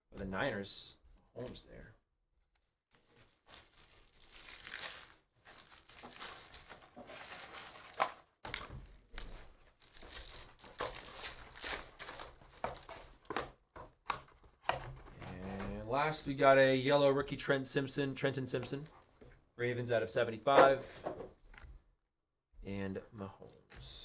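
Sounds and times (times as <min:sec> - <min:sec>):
foil card pack crinkling and tearing: 0:03.3 - 0:13.3.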